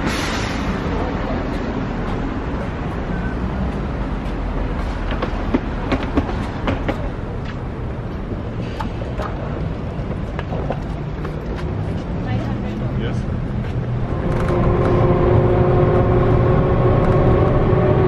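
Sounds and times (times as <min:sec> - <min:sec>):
rumble of passing vehicles: 0:00.0 - 0:18.0
sharp clicks and knocks: 0:05.0 - 0:07.6.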